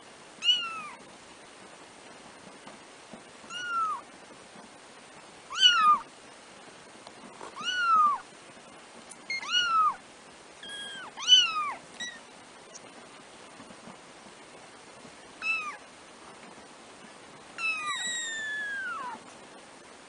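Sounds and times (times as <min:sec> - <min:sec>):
kittens mewing: 0:17.6 - 0:19.2.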